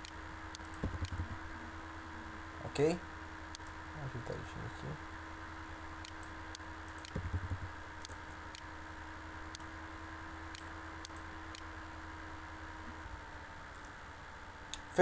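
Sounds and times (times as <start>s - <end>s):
computer mouse clicking: 0.0s - 1.3s, 6.0s - 8.7s, 10.5s - 11.7s
steady hum: 0.0s - 15.0s.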